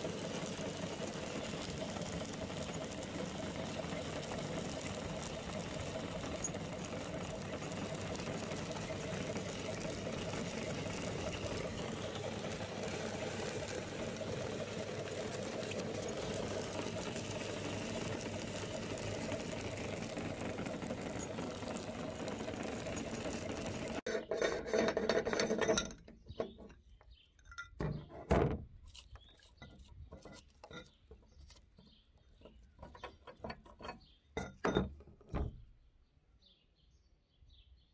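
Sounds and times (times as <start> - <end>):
meat grinder crushing candy: 0.0 - 24.1
metal clanks and clicks: 22.2 - 28.5.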